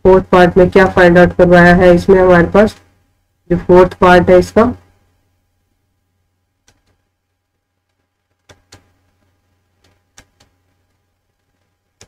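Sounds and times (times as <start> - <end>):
low electrical hum: 0.0 - 12.0
computer mouse clicks: 6.6 - 7.1, 7.8 - 12.0.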